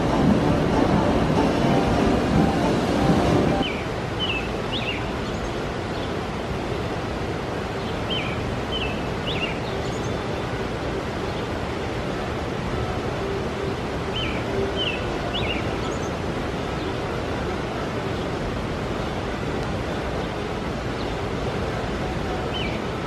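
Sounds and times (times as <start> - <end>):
water rushing: 0.0 - 23.0
bird chirping: 3.6 - 6.1, 8.1 - 10.2.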